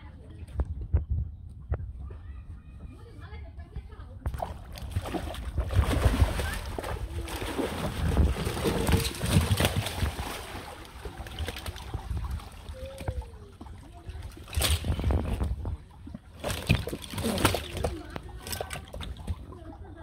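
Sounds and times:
water splashing and sloshing: 1.6s - 20.0s
fish flopping on wooden deck: 4.3s - 19.6s.

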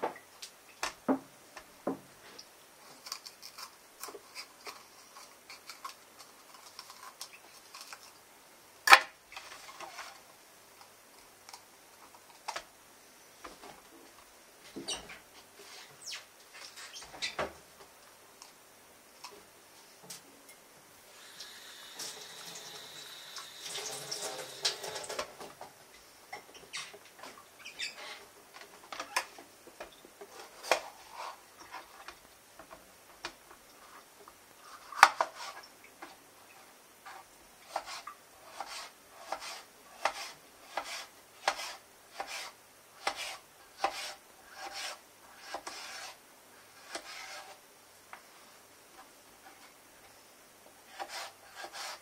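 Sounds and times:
tap water running: 21.1s - 25.6s.

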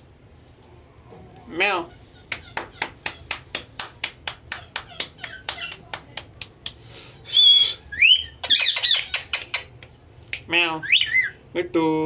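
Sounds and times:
parakeet squawking and chirping: 7.8s - 9.8s, 10.8s - 11.4s.

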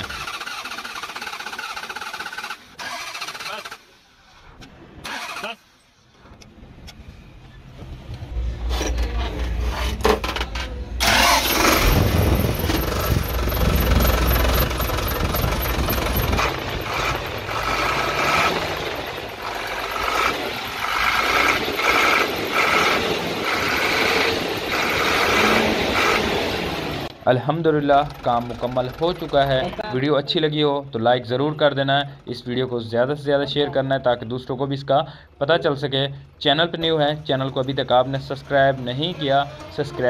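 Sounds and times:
diesel engine cranking and running: 0.0s - 5.5s, 8.0s - 30.4s, 36.2s - 40.0s.

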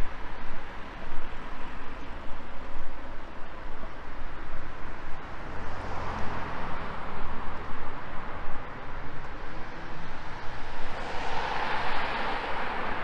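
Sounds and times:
cars driving past: 5.2s - 13.0s.

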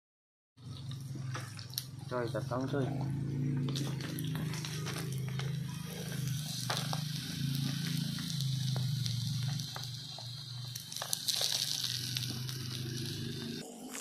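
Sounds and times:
meat crackling and hissing: 0.6s - 14.0s.

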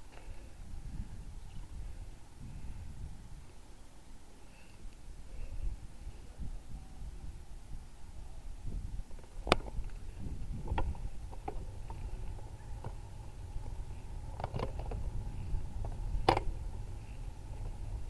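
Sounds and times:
tyre and wind rumble: 0.0s - 3.6s, 5.1s - 18.0s
bike clicks and knocks: 9.2s - 18.0s.

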